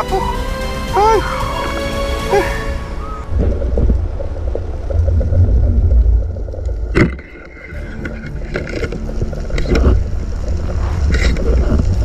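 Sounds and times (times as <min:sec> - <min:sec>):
underwater rumble of water: 0:02.8 - 0:12.0.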